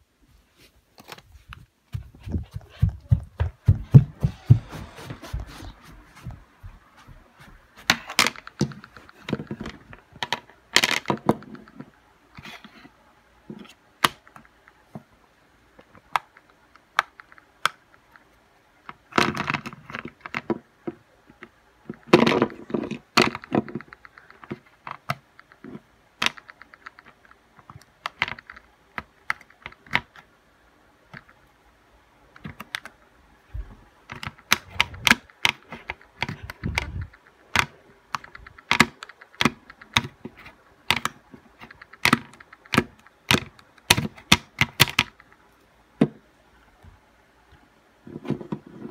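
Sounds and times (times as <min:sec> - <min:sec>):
fidget toy clicking and popping: 0:34.2 - 0:40.2, 0:40.9 - 0:45.4.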